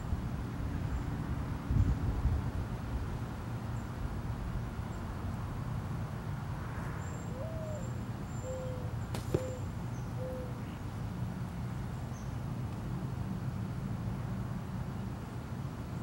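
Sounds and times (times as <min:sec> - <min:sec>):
mourning dove cooing: 0:07.3 - 0:10.8
sharp snap: 0:09.1 - 0:09.6.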